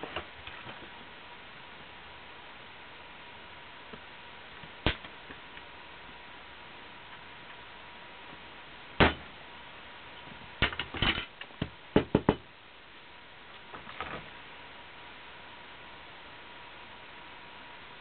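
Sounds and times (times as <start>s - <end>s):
objects knocking on a workbench: 11.6s - 12.4s.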